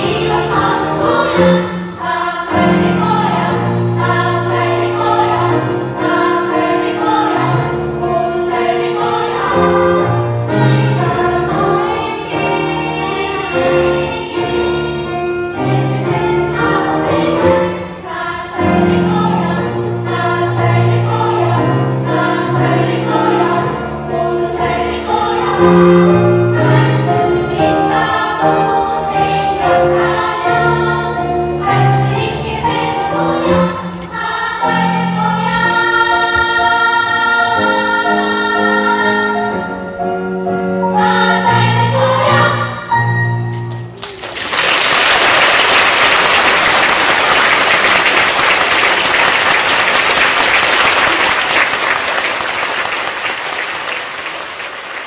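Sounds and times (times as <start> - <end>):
youth choir singing: 0.0 - 39.9, 40.8 - 43.2
audience applause: 44.0 - 55.0.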